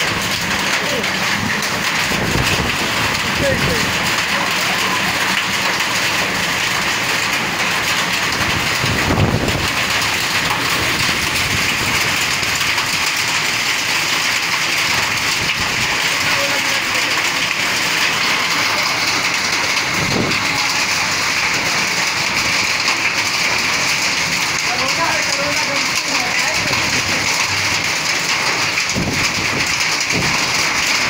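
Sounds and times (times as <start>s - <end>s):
low thunder rumbles: 0.0s - 4.3s, 8.3s - 13.2s, 17.5s - 22.6s
hail and heavy rain pelting: 0.0s - 31.0s.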